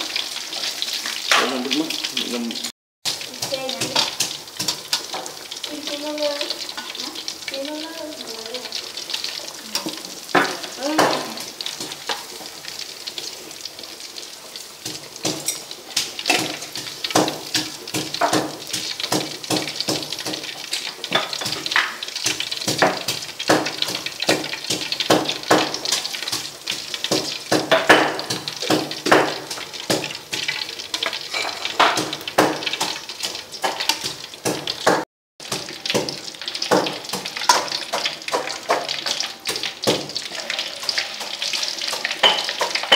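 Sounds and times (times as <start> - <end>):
fish deep-frying in hot oil: 0.0 - 42.9
metal spatula scraping in pan: 3.1 - 5.6, 19.7 - 34.3, 37.0 - 42.9.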